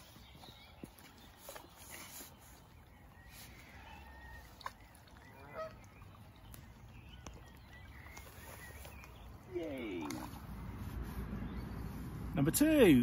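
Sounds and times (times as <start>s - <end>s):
geese honking: 5.3s - 5.9s.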